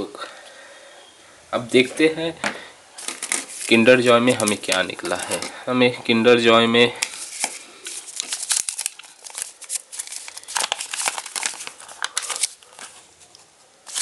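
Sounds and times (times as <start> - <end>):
paper crinkling and rustling: 3.0 - 5.6, 7.0 - 14.0.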